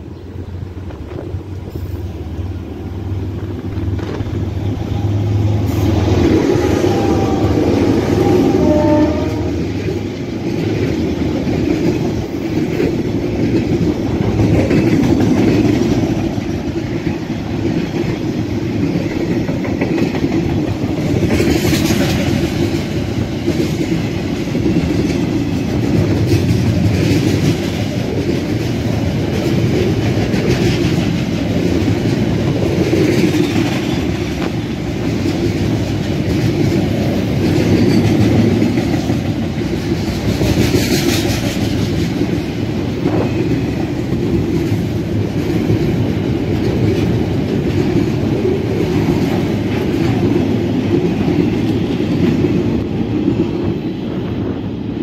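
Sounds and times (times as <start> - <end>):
diesel locomotive passing: 0.0 - 55.0
freight train wheels on rails: 0.0 - 55.0.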